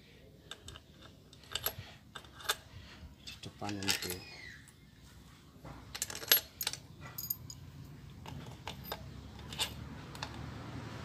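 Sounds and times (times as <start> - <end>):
steel bolts clinking: 0.5 - 4.3, 8.2 - 10.4.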